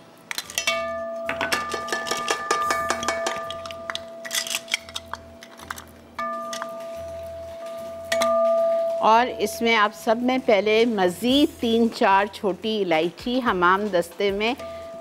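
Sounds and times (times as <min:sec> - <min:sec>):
plastic measuring cups clattering: 0:01.3 - 0:05.9.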